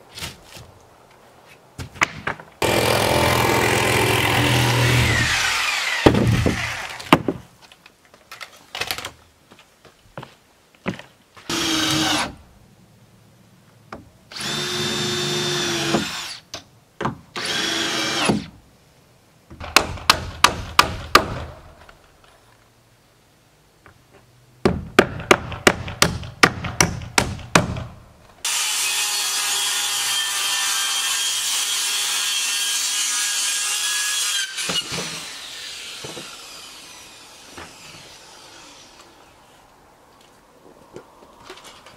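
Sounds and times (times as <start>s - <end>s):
power saw cutting wood: 2.6s - 7.1s, 28.4s - 39.4s
hammer nailing strikes: 19.6s - 21.5s, 24.6s - 28.0s.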